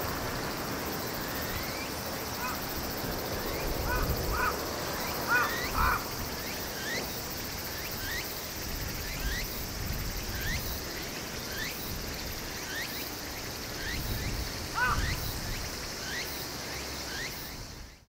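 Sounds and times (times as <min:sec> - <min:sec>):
hoarse bird calls: 0:02.3 - 0:02.7, 0:03.8 - 0:06.2, 0:14.8 - 0:15.2.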